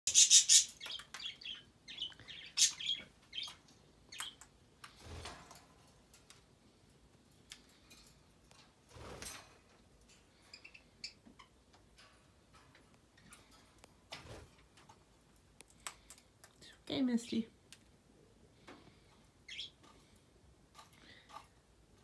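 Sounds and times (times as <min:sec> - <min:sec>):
birds chirping: 0:00.1 - 0:04.6, 0:10.2 - 0:11.7, 0:18.6 - 0:20.2.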